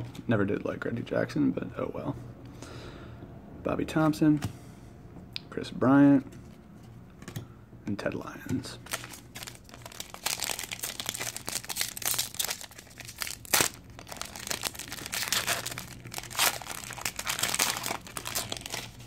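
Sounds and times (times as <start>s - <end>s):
foil wrapper crinkling and tearing: 8.8s - 19.0s.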